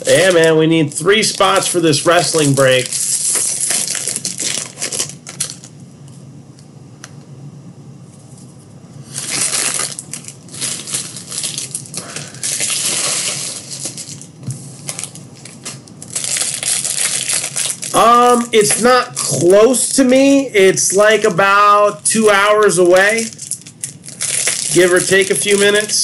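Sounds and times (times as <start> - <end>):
paper cards rustling: 0.0 - 5.7, 9.1 - 20.1, 22.2 - 26.0.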